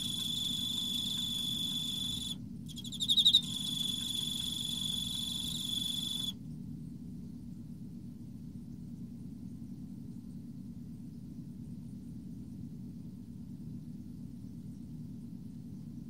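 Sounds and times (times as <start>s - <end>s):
cricket trilling: 0.0s - 6.3s.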